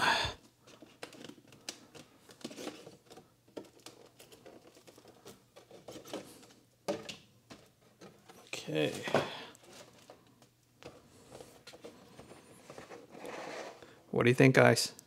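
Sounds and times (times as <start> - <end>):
plastic cover crinkling: 0.6 - 6.6.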